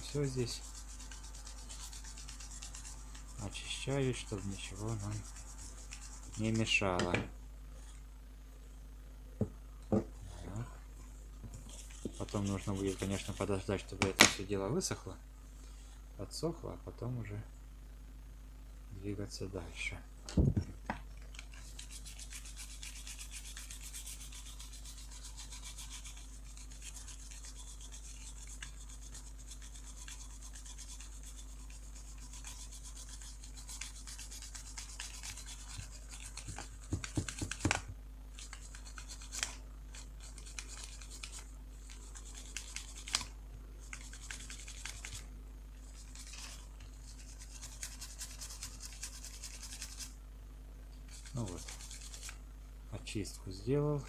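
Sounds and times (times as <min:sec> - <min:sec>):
brush scrubbing circuit board: 0:00.0 - 0:06.9, 0:11.7 - 0:13.9, 0:21.4 - 0:37.7, 0:38.4 - 0:43.2, 0:43.8 - 0:45.2, 0:45.8 - 0:50.2, 0:51.1 - 0:52.4.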